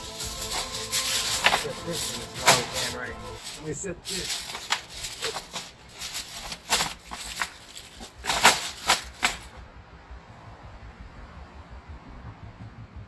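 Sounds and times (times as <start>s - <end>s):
aluminium foil crinkling: 0.0s - 9.6s.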